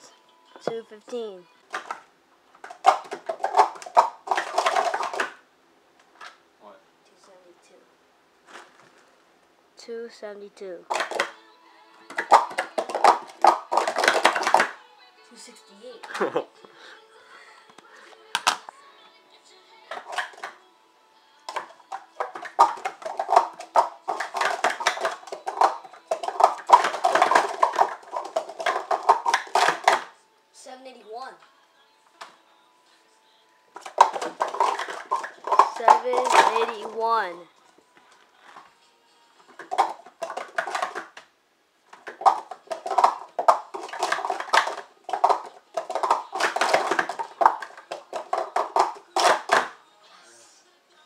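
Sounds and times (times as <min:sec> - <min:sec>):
plastic cups clacking: 0:01.7 - 0:02.0, 0:02.6 - 0:05.4, 0:10.9 - 0:11.4, 0:12.1 - 0:14.8, 0:19.9 - 0:20.6, 0:21.5 - 0:30.2, 0:33.8 - 0:37.2, 0:39.5 - 0:41.3, 0:41.9 - 0:49.8.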